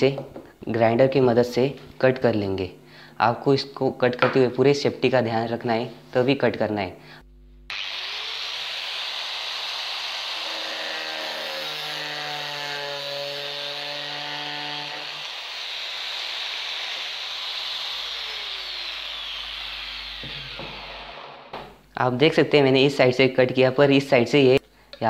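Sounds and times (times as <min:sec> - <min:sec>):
angle grinder cutting plastic: 0:07.7 - 0:21.7.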